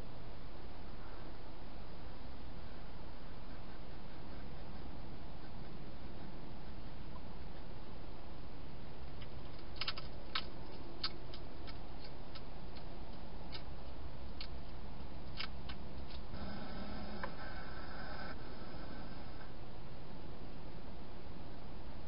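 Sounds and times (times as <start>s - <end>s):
steady low hiss: 0.0s - 22.0s
hedgehog crunching dry food: 9.2s - 13.7s.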